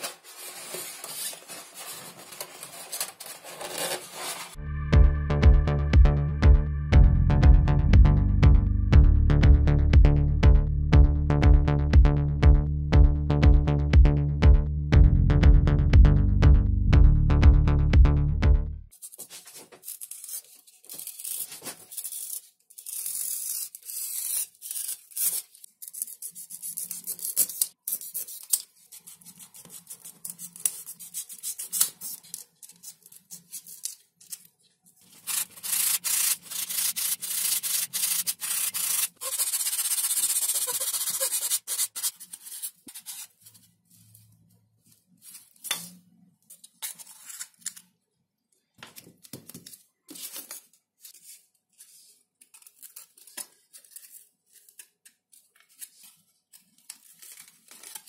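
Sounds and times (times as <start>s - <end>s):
utility knife cutting foam: 35.2s - 43.2s.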